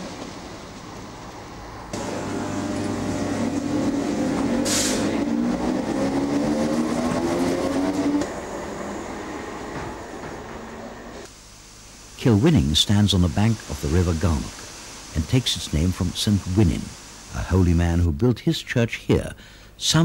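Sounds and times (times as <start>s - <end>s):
train engine pulling away: 0.0s - 11.3s
brief hiss: 2.0s - 5.3s.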